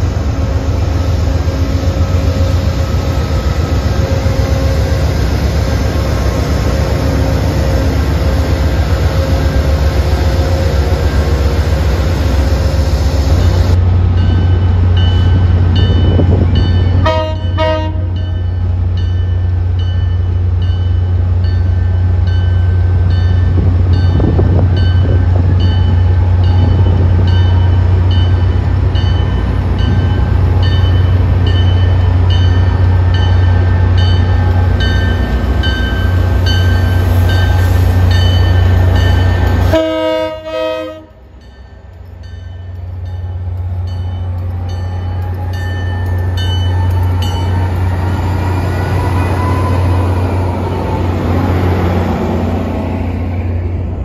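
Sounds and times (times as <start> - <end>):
locomotive bell ringing: 14.1 - 51.2
short train horn toot: 17.0 - 18.2, 39.6 - 41.2.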